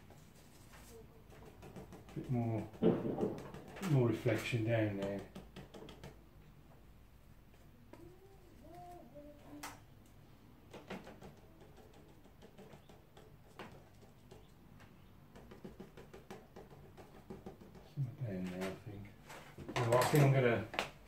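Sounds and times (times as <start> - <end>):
brush strokes on paper: 0.0 - 1.1.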